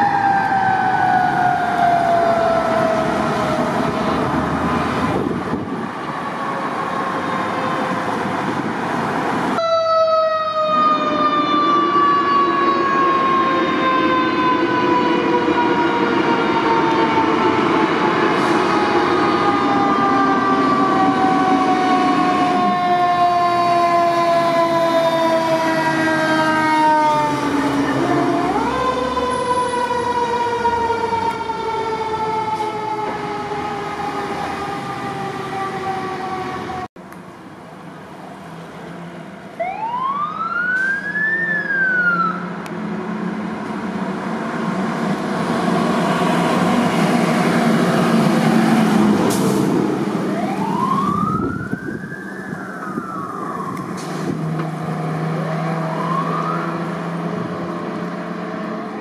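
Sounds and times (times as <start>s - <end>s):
fire truck siren wailing: 0.0s - 36.9s, 38.6s - 59.0s
engine hum: 16.5s - 59.0s.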